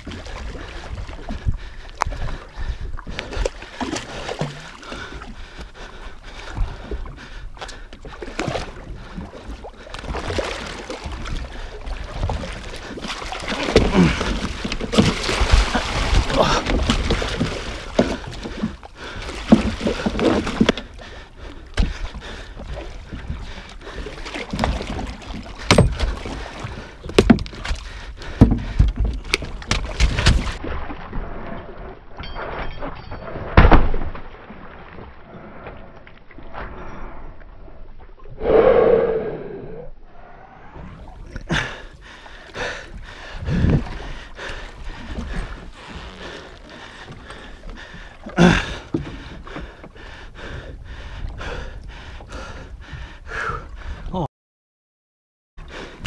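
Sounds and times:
fish splashing and thrashing: 0.0s - 38.3s, 41.0s - 50.1s
thuds against boat deck: 25.7s - 26.2s.

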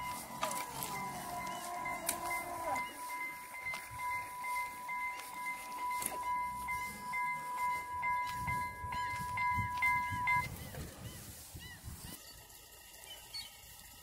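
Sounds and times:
level crossing warning bell: 0.0s - 10.7s
low rumbling: 0.0s - 12.2s.

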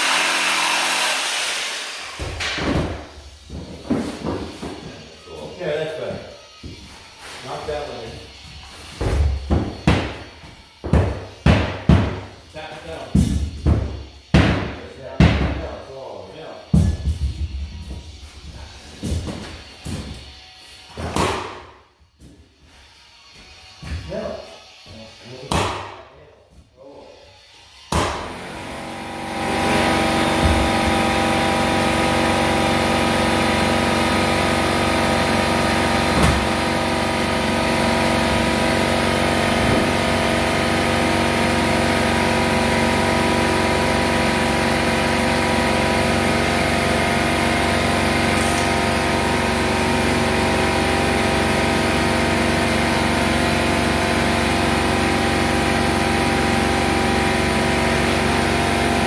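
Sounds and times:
air compressor droning: 28.0s - 59.0s.

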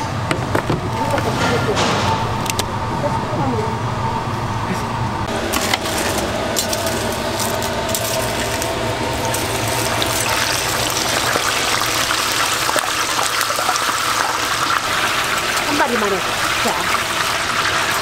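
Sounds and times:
oil sizzling and bubbling: 5.3s - 18.0s.

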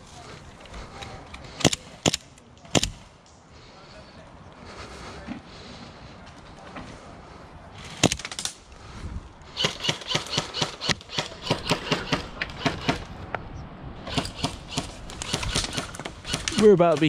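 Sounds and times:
airsoft gun sharp cracks: 1.6s - 3.1s.

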